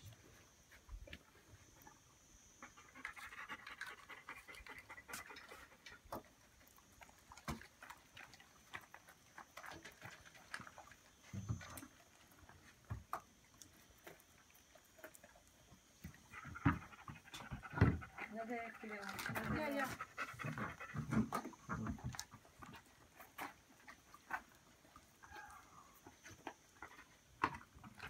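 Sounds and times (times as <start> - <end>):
dog panting softly: 2.6 - 6.8, 16.1 - 22.2.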